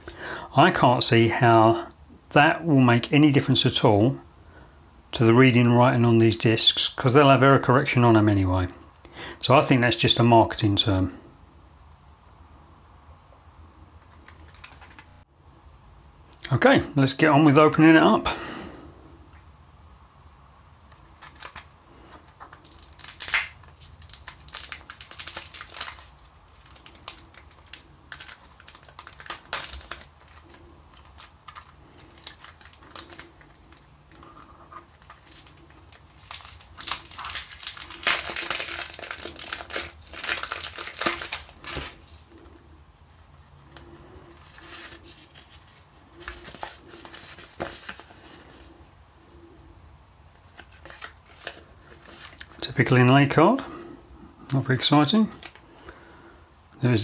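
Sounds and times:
plastic wrapper tearing and crinkling: 14.1 - 15.2, 20.9 - 42.6, 43.2 - 48.7, 50.5 - 52.7, 55.4 - 55.6.

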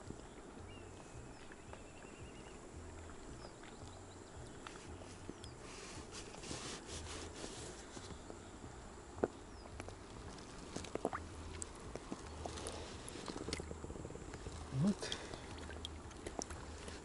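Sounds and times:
water splashing and lapping: 0.0 - 17.0
fish splashing: 9.8 - 17.0.

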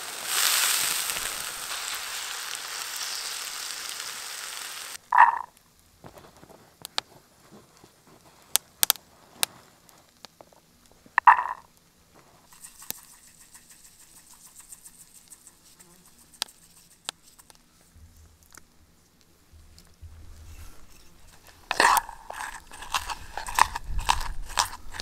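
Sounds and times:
sugar pouring hiss: 0.0 - 5.5, 12.4 - 17.6, 20.7 - 25.0.

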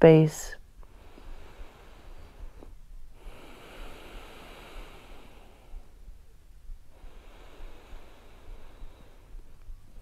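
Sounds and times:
person breathing out slowly: 3.2 - 6.0, 6.9 - 9.5.

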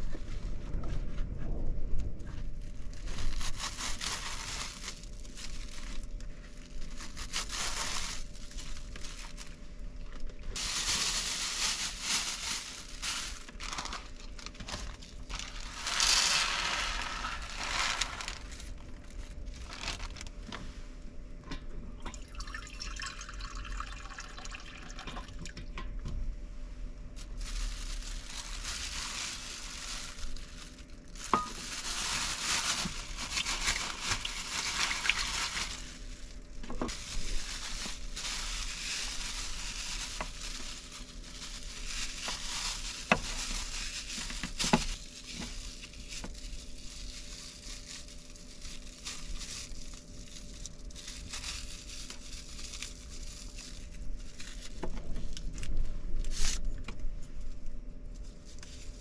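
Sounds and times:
plastic bag crinkling: 2.2 - 20.5, 27.0 - 59.0
water pouring into bag: 10.6 - 18.5, 22.1 - 25.6, 27.3 - 53.6.

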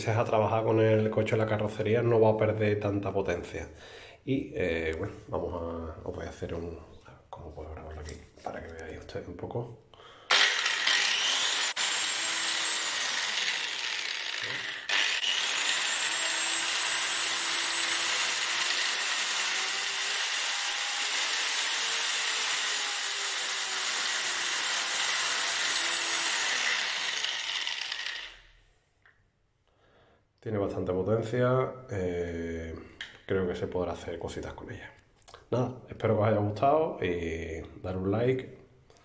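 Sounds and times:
electric polisher whine: 10.3 - 16.8.

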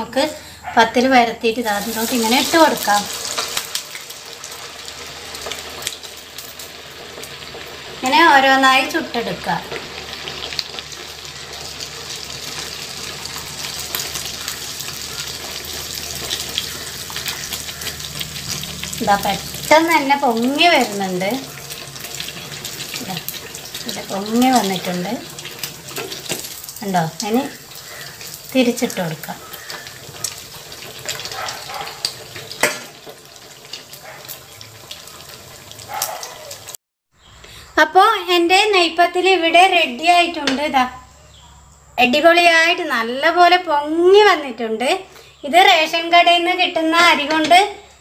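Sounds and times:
dough deep-frying in hot oil: 1.4 - 36.8.

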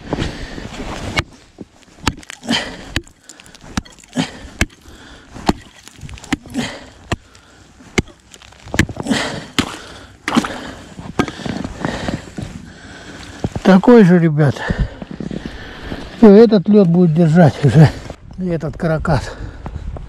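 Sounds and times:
ice cracking: 0.7 - 14.2
ice being struck: 2.0 - 10.6.

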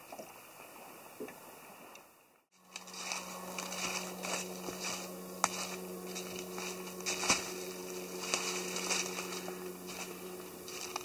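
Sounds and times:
footsteps on dry leaves: 2.6 - 11.0
steady low hum: 2.6 - 11.0.

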